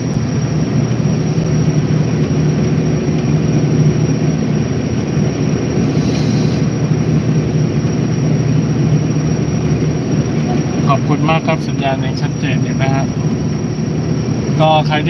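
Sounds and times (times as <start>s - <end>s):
ferry engines droning: 0.0s - 15.0s
hiss of water and air: 5.7s - 7.4s.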